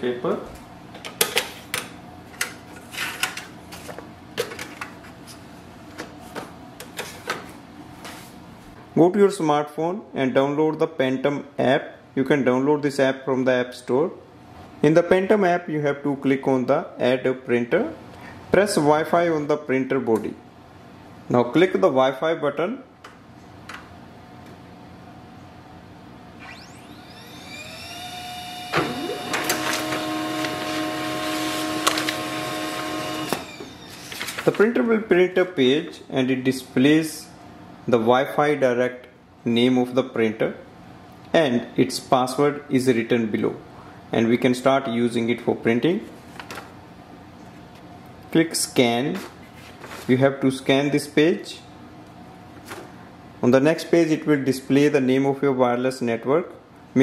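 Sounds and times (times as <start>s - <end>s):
printer motor whine: 26.4s - 34.4s
printer clicking: 28.7s - 33.5s
paper feed clunk: 28.7s - 34.7s
paper sheets rustling: 29.5s - 32.2s, 33.9s - 34.8s, 46.2s - 46.8s, 49.2s - 50.2s.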